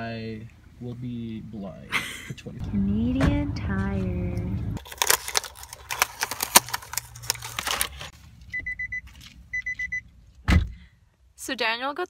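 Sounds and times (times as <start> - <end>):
plastic bag rustling: 4.8 - 8.2.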